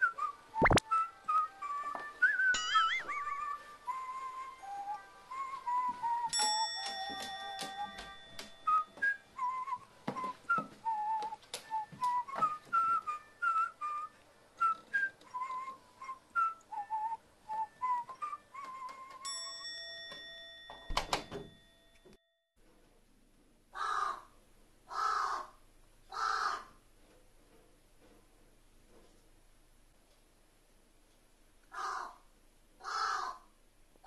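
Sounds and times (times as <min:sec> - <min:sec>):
whistled tune with clicks: 0:00.0 - 0:19.4
chime: 0:02.6 - 0:03.4, 0:06.3 - 0:09.0, 0:19.2 - 0:22.4
crow cawing: 0:23.8 - 0:24.3, 0:24.9 - 0:26.7, 0:31.7 - 0:32.2, 0:32.8 - 0:33.5.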